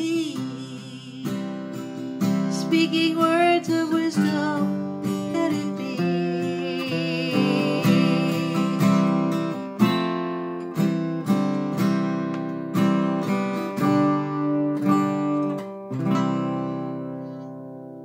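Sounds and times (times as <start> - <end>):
acoustic guitar strumming chords: 0.0 - 18.0.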